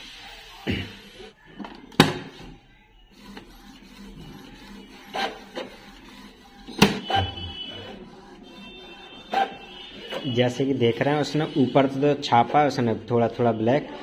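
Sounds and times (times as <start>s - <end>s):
inkjet printer running: 0.0s - 1.4s, 3.1s - 13.0s
printer mechanical clunks: 1.9s - 2.4s, 6.7s - 7.6s.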